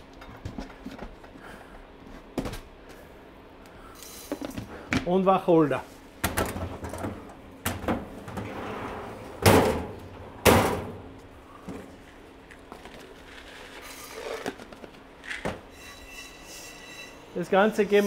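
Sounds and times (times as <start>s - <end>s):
steel cabinet door banging: 9.4s - 11.0s.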